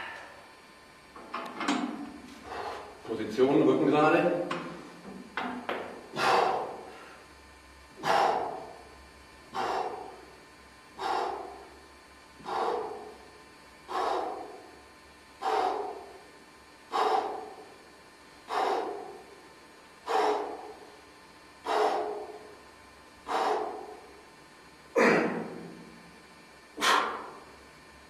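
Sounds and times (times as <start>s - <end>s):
man breathing hard: 2.3s - 3.0s, 6.0s - 24.3s, 24.9s - 27.6s.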